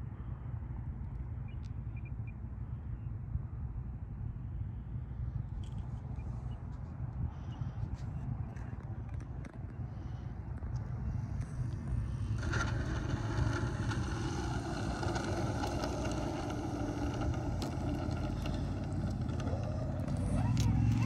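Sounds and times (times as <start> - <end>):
model airplane engine running: 11.8 - 21.0.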